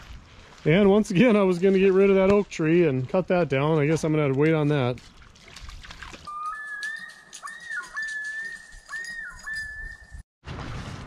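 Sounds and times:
person whistling: 0:06.3 - 0:10.2.

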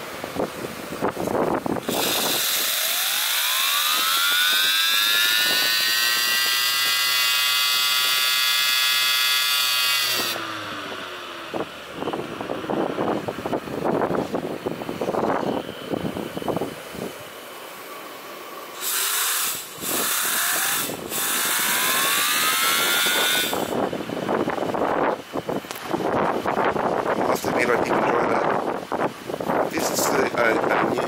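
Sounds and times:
steam turbine whine: 0:00.0 - 0:31.0
wind buffeting microphone: 0:00.2 - 0:07.2, 0:10.2 - 0:17.4, 0:19.6 - 0:31.0
steam hissing: 0:18.7 - 0:23.8.

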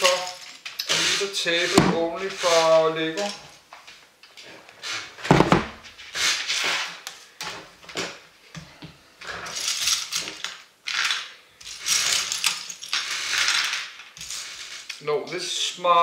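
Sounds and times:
knock: 0:05.3 - 0:05.8
plastic bricks clattering: 0:09.4 - 0:15.0.

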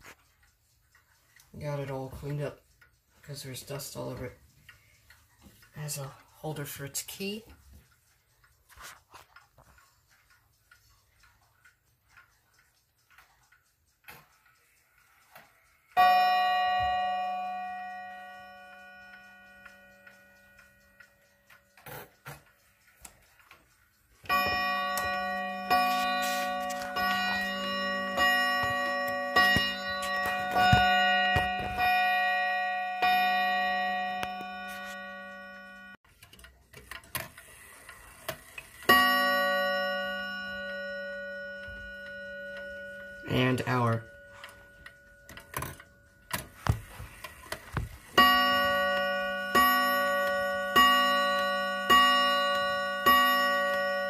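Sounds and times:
clock movement clicks: 0:00.0 - 0:54.0
wall clock ticking: 0:00.0 - 0:54.0
clock striking gong: 0:15.9 - 0:22.2, 0:24.2 - 0:36.0, 0:38.8 - 0:47.2, 0:48.0 - 0:54.0
hammer striking gong: 0:24.4 - 0:35.0.

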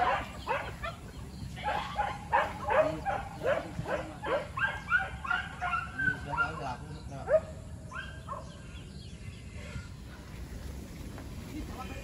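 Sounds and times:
dogs barking and yelping: 0:00.0 - 0:08.6.

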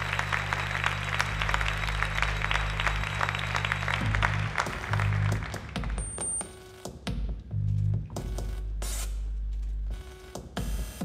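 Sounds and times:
low musical drone: 0:00.0 - 0:05.7
many hands clapping: 0:00.0 - 0:06.7.

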